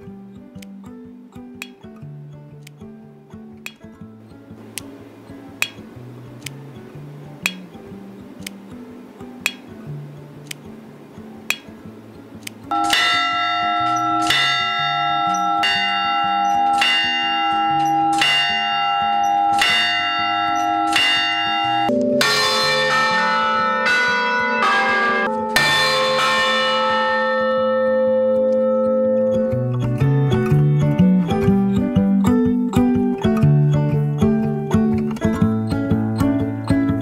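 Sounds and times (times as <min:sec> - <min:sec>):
church bell ringing: 0:12.7 - 0:29.7.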